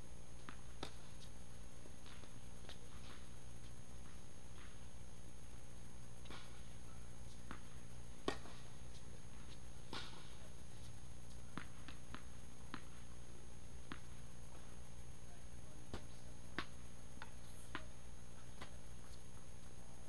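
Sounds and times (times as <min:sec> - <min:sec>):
low hum of hall: 0:00.0 - 0:20.0
tennis balls bouncing and hit: 0:00.4 - 0:04.9, 0:06.2 - 0:14.8, 0:15.8 - 0:19.4.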